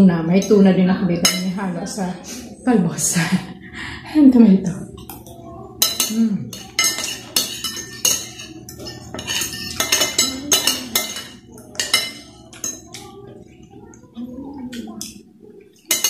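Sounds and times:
cutlery scraping a glass plate: 5.2s - 13.2s.

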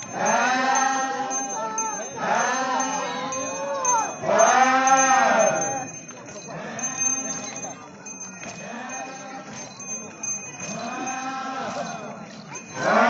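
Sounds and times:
men chanting in unison: 0.0s - 7.4s, 10.7s - 13.0s.

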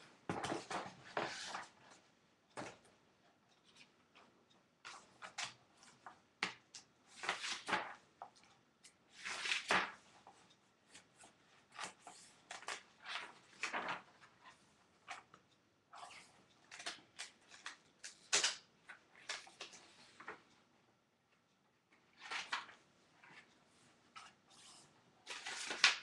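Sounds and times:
objects rustling and clicking: 11.8s - 15.2s.

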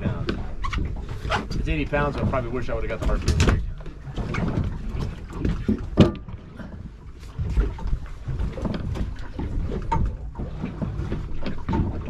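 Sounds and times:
water sloshing against boat hull: 0.0s - 12.0s
wind rumbling on microphone: 0.0s - 12.0s.

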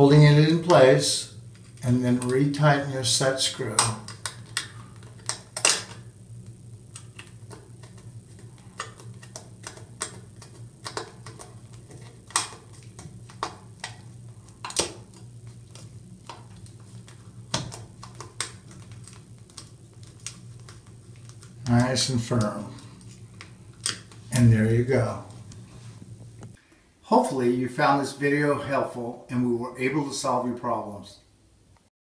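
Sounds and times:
low hum: 0.0s - 29.8s.

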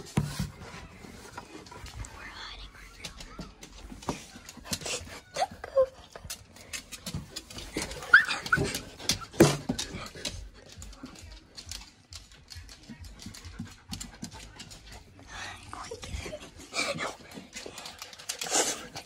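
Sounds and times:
dog whining: 7.8s - 9.2s.

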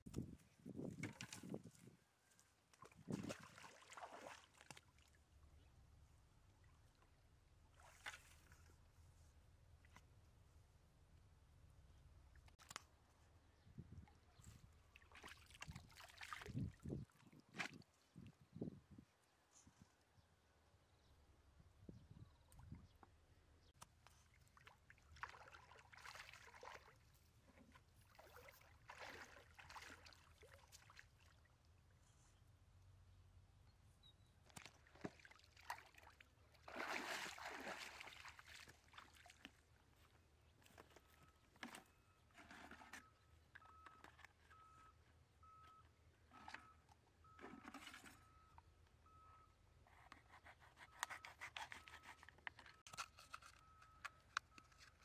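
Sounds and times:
water sloshing and splashing: 0.8s - 2.0s, 2.7s - 5.3s, 7.7s - 8.8s, 14.4s - 18.2s, 24.1s - 31.6s, 34.4s - 41.8s.

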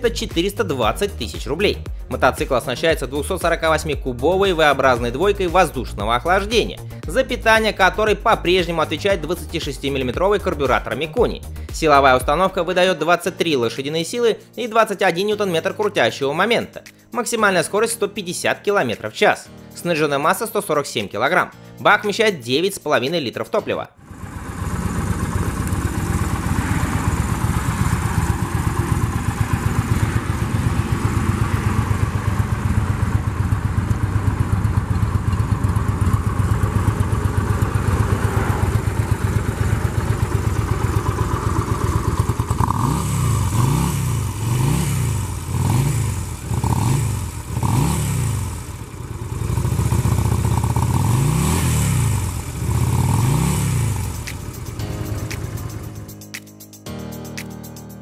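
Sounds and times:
motorcycle engine idling: 0.0s - 12.6s, 24.0s - 56.1s
motorcycle engine revving: 24.0s - 56.0s.

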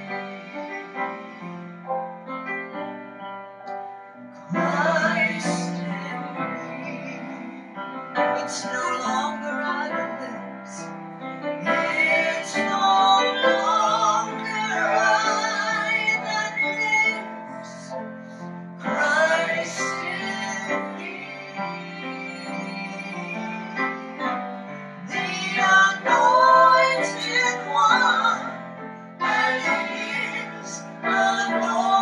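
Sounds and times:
piano accompaniment: 0.0s - 32.0s
woman singing gospel song: 8.4s - 10.8s, 11.7s - 17.2s, 25.1s - 28.5s, 29.2s - 32.0s.

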